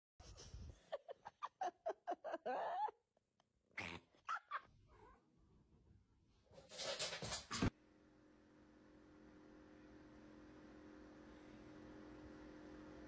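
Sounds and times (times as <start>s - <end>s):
cat making laughter-like calls: 0.8s - 3.0s, 3.8s - 4.8s.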